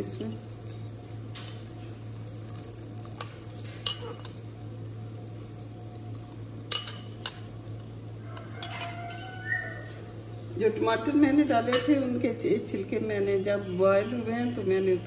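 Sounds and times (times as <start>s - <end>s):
steady low hum: 0.0s - 15.0s
crockery clinking against pot: 6.7s - 7.4s.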